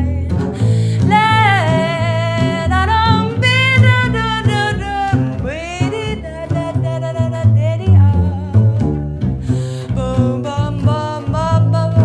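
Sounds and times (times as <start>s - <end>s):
double bass playing: 0.0s - 12.0s
woman singing jazz: 0.0s - 12.0s.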